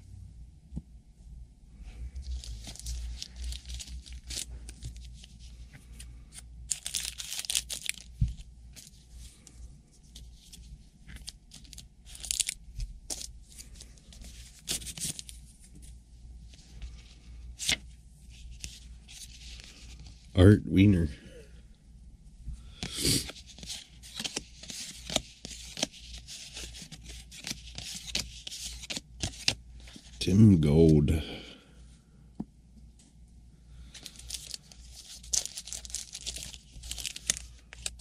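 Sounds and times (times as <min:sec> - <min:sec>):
card wrappers tearing and crumpling: 0:02.2 - 0:05.3, 0:06.6 - 0:08.9, 0:10.2 - 0:15.4, 0:22.8 - 0:30.2, 0:33.8 - 0:38.0.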